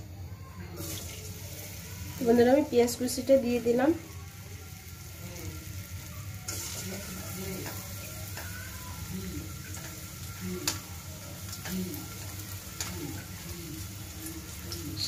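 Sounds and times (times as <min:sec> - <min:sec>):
onions sizzling in oil: 0:00.7 - 0:15.0.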